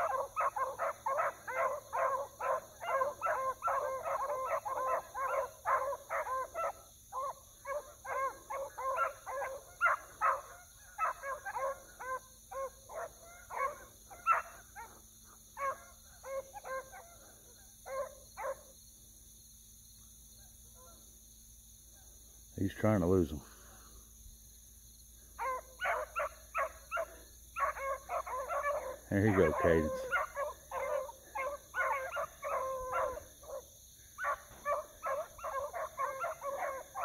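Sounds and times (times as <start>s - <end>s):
hounds baying and barking: 0.0s - 18.7s, 25.2s - 37.0s.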